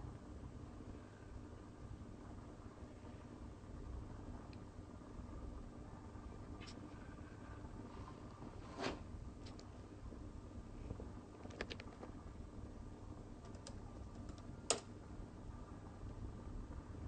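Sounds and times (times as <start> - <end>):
faint low rumble: 0.0 - 17.0
sharp clicks: 13.4 - 14.9.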